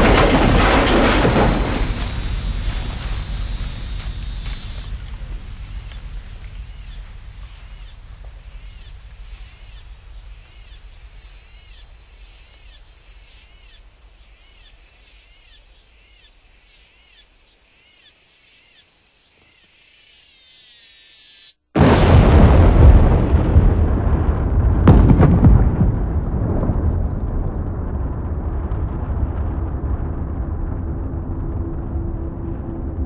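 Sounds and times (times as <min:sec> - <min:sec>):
low rumble: 0:00.0 - 0:09.4, 0:22.0 - 0:33.0
high insect drone: 0:01.1 - 0:21.6.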